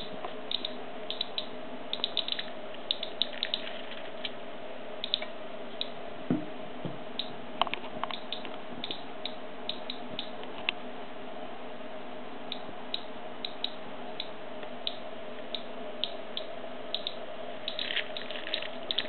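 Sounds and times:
radiation counter clicking: 0.0 - 3.7, 5.0 - 6.0, 7.2 - 10.4, 12.5 - 19.0
faint steady hum: 0.0 - 19.0
soft knock: 6.3 - 7.0.

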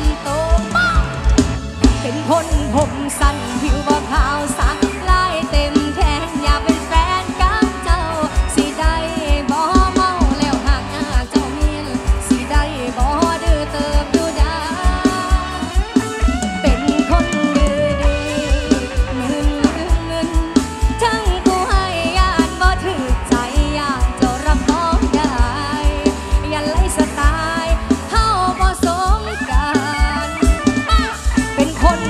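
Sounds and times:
drum kit steady kick beat: 0.0 - 32.0
person singing ornamented notes: 31.6 - 32.0.

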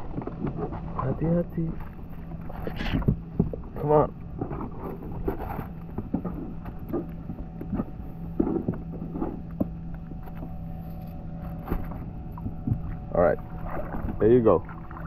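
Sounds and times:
steady low hum: 0.0 - 15.0
knocks and scrapes on kayak: 1.7 - 13.0.

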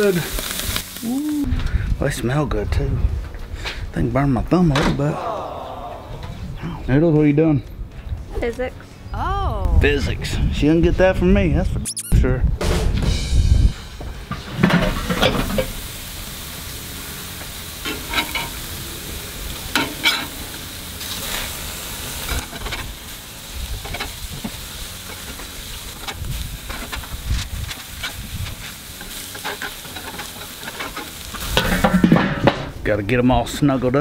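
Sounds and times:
burger patties sizzling on grill: 0.0 - 1.5, 13.8 - 33.6.

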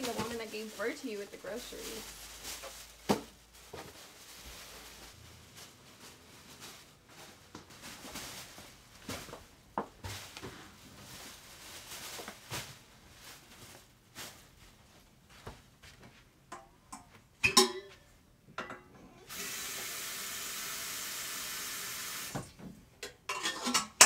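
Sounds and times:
groceries knocking and rustling: 0.0 - 18.0.

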